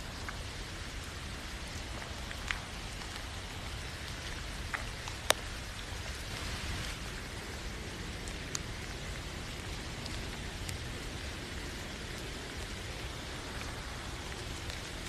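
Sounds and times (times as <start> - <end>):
raindrop ticking: 0.0 - 15.0
steady rain hiss: 0.0 - 15.0.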